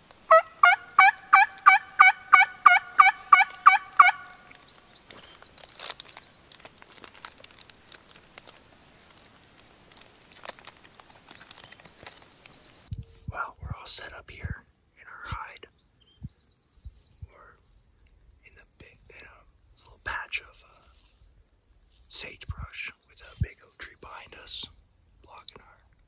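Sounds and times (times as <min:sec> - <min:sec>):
turkey yelps: 0:00.3 - 0:04.6.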